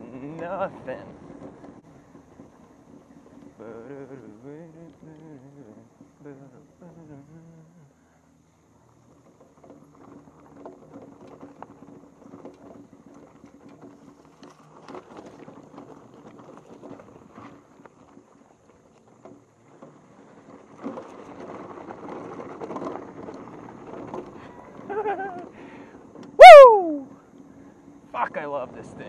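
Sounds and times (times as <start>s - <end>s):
bike rattling: 0.0s - 29.0s
tyres crunching on gravel: 8.6s - 26.4s.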